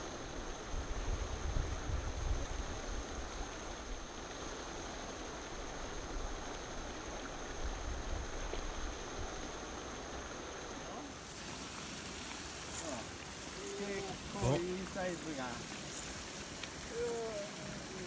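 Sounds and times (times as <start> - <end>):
wind rumbling on microphone: 0.0 - 10.6
outdoor hiss: 0.0 - 18.0.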